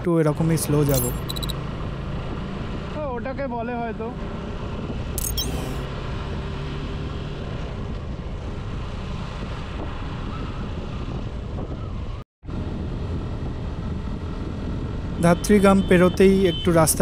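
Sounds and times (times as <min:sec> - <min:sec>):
wind noise on microphone: 0:09.4 - 0:15.2.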